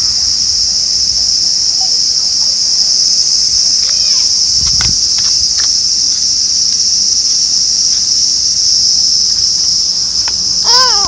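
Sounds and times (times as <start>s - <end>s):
cicadas shrilling: 0.0s - 11.0s
toddler's voice: 10.7s - 11.0s.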